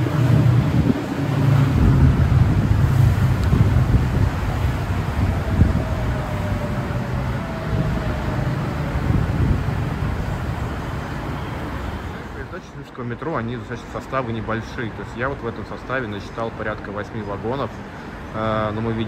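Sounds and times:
monorail train rumble: 0.0 - 12.6.

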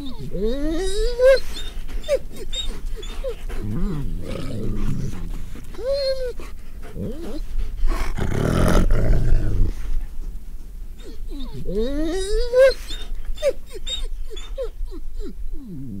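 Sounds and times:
wolf whining: 0.0 - 9.9, 11.0 - 16.0
wolves snarling and growling: 0.0 - 10.0.

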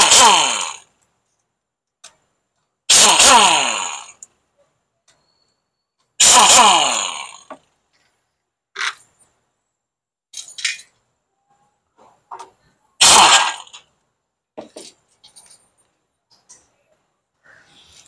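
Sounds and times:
air impact wrench burst: 0.0 - 0.8, 2.9 - 4.2, 6.2 - 7.5, 13.0 - 13.8
metal clicks of tool and bolts: 10.3 - 11.0.

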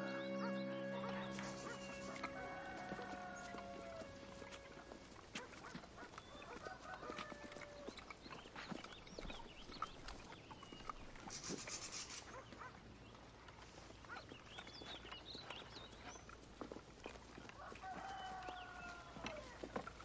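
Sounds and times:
poultry clucking and squawking: 0.0 - 8.1.

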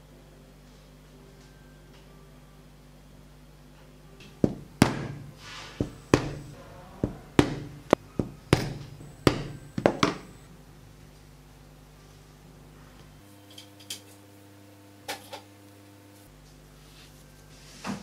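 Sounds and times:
mallet knocks on leather: 4.2 - 10.4.

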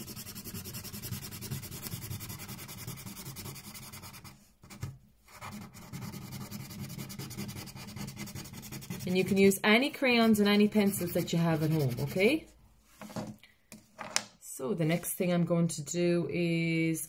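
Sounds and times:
crayon scribbling on paper: 0.0 - 4.4, 5.3 - 12.4.

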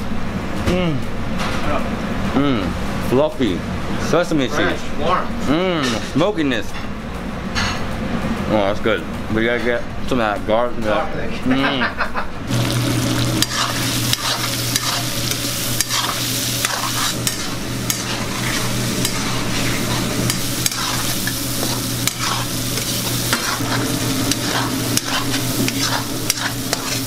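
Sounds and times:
steady low hum: 12.3 - 27.0
chicken sizzling in wok: 12.5 - 27.0
metal ladle scraping pan: 13.4 - 27.0.

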